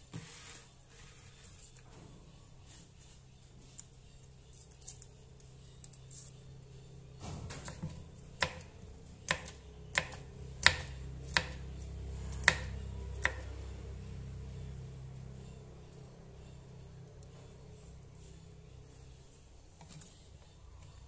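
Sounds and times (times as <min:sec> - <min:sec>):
knife chopping on wooden board: 0:09.3 - 0:11.6, 0:12.3 - 0:13.4.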